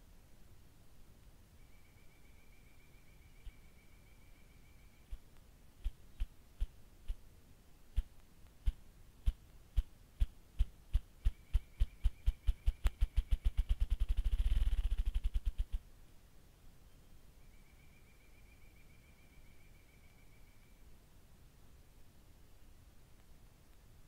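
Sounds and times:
grouse drumming wingbeat thumps: 8.0s - 15.8s.

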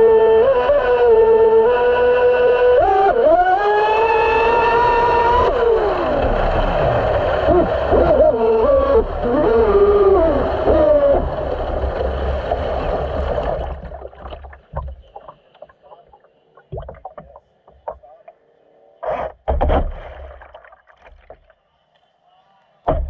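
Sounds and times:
electric boat motor whine: 0.0s - 13.8s
water rushing past hull: 0.8s - 18.0s, 19.5s - 21.6s
water slapping against hull: 5.1s - 18.1s, 19.0s - 21.6s.

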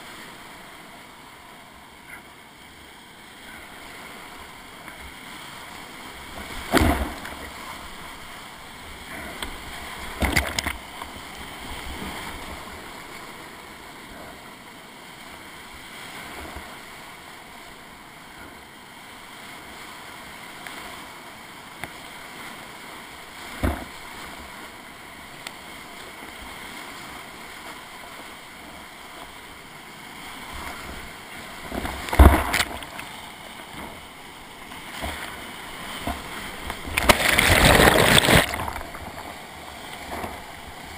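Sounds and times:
loud splashes of paddle and water: 5.5s - 8.4s, 30.3s - 33.2s, 34.7s - 40.9s
whitewater rapids rushing: 30.3s - 40.9s.

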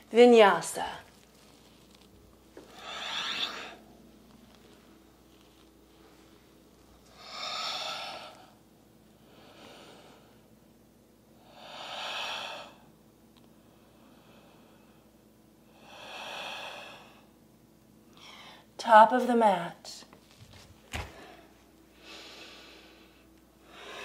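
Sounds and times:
woman breathing deeply: 2.7s - 3.9s, 7.1s - 8.6s, 9.2s - 10.5s, 11.4s - 12.9s, 13.7s - 17.4s, 18.2s - 18.7s, 21.0s - 24.0s.

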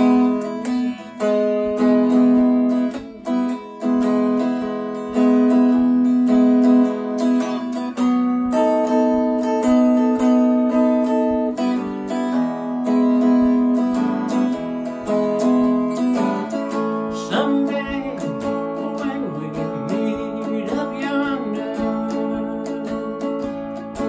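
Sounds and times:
clean electric guitar: 0.0s - 24.0s
man singing: 14.3s - 24.0s.

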